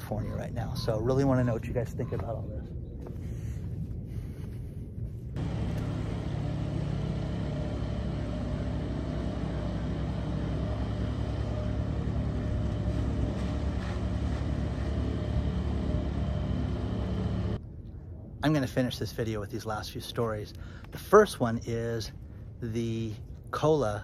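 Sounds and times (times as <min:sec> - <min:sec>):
outboard motor running: 0:05.4 - 0:17.6.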